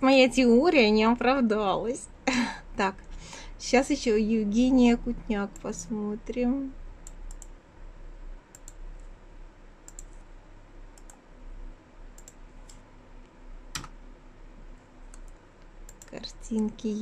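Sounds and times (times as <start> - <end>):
computer keyboard clicks: 7.0 - 7.5, 8.5 - 8.8, 9.9 - 10.2, 11.0 - 11.2, 12.2 - 12.8, 13.8 - 14.0.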